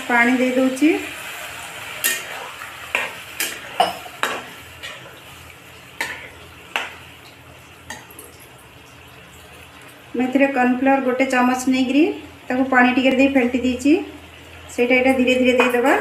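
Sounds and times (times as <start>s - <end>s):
sauce sizzling: 0.0s - 16.0s
metal spatula scraping pan: 2.0s - 5.1s.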